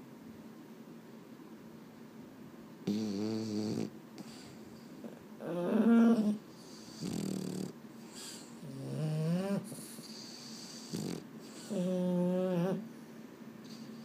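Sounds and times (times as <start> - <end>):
dog snoring: 2.8 - 12.8.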